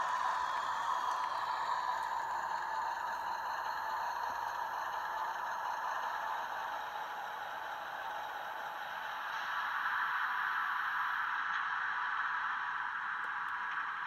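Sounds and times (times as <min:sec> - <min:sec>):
model train whirring on track: 0:00.0 - 0:09.2.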